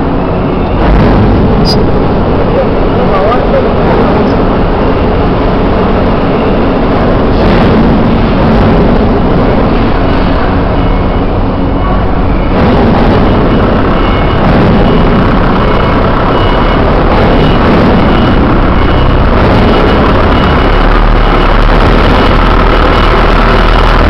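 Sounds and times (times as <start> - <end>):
loud mechanical noise: 0.0 - 24.0
faint high beep: 6.3 - 6.8, 10.0 - 12.6, 13.3 - 21.5.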